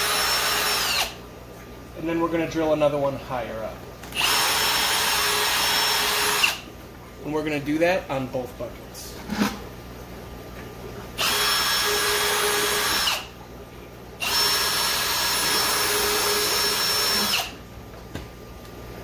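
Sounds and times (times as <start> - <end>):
cordless drill boring plastic: 0.0 - 1.2, 4.1 - 6.6, 11.2 - 13.3, 14.2 - 17.6.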